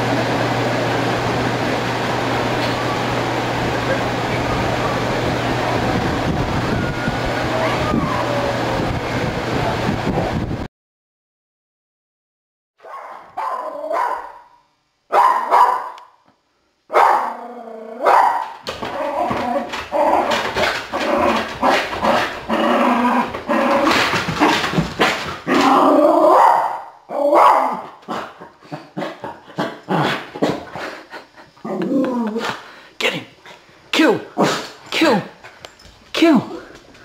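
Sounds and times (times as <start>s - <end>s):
dog crying: 7.5s - 8.6s, 12.8s - 14.6s
dog barking and growling: 12.8s - 16.2s, 16.9s - 30.9s, 31.6s - 32.7s, 34.1s - 35.4s.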